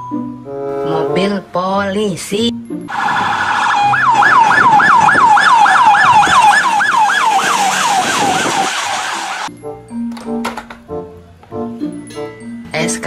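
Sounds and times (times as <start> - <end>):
electronic siren yelp: 2.9 - 9.5.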